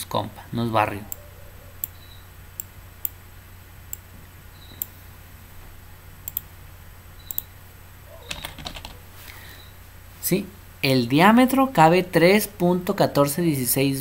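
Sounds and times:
faint low hum: 0.0 - 14.0
computer mouse clicking: 6.2 - 6.5, 7.2 - 7.5.

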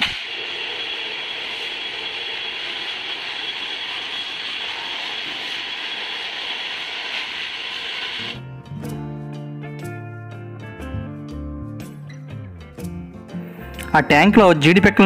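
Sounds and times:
industrial machinery hiss: 0.0 - 8.4
thin high whine: 0.0 - 8.5.

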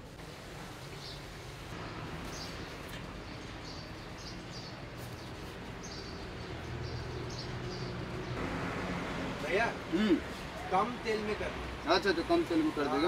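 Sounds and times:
small birds chirping: 0.8 - 8.4.

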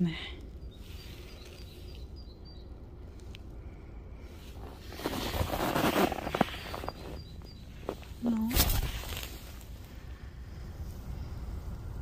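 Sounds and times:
rustling and crunching in snow: 4.3 - 10.0.

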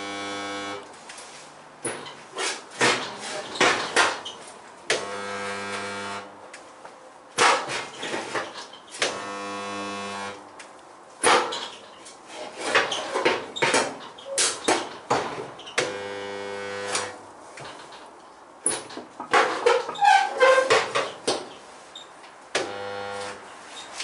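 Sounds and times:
spot welder humming: 0.0 - 0.9, 9.0 - 10.4, 15.8 - 17.2, 22.6 - 23.4.

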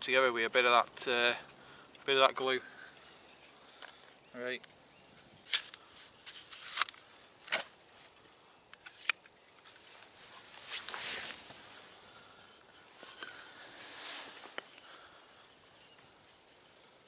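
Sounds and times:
rustling scrapes: 9.0 - 14.8.

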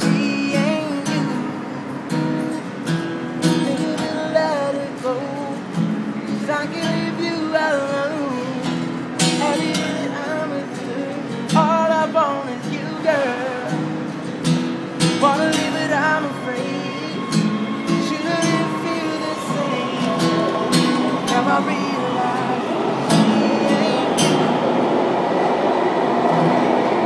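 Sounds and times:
man singing: 0.0 - 1.9, 3.4 - 14.2, 15.0 - 24.6
acoustic guitar strumming: 0.0 - 25.2.

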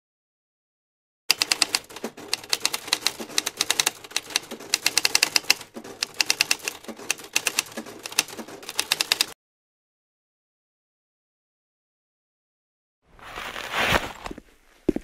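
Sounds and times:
typewriter keys clacking: 1.3 - 9.4.

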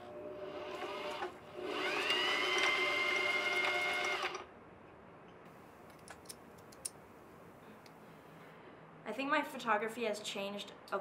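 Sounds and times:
sewing machine motor whine: 0.0 - 4.4.

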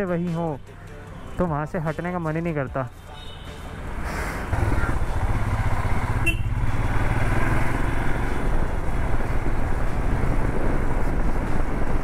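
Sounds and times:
motorcycle engine rumble: 3.0 - 12.0
wind rushing over microphone: 4.4 - 12.0.

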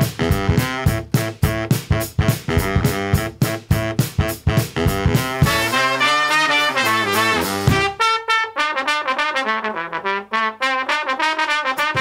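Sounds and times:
drums: 0.0 - 8.1, 11.3 - 12.0
brass band playing: 0.0 - 12.0
trumpet: 0.0 - 12.0.

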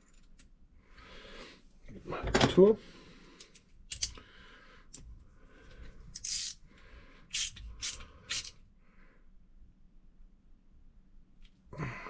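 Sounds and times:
screwdriver scraping metal screw: 6.2 - 6.6, 7.3 - 8.6.

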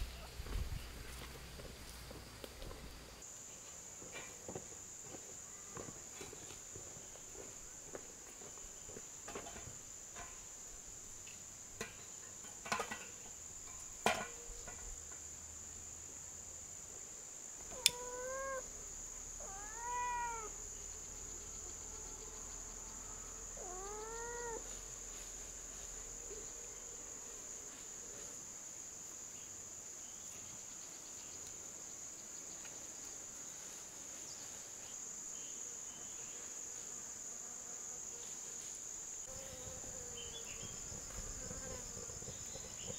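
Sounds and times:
high-pitched insect chorus: 3.2 - 42.9
rising-and-falling animal calls: 17.7 - 18.7, 19.4 - 20.6, 23.6 - 24.7.

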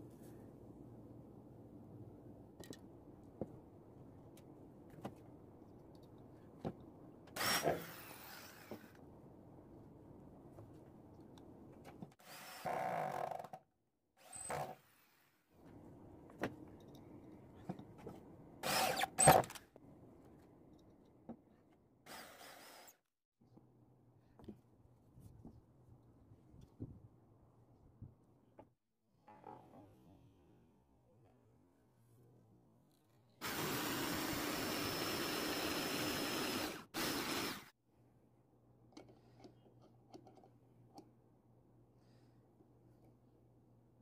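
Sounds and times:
cordless drill driving screws: 18.6 - 19.4, 33.6 - 37.7.

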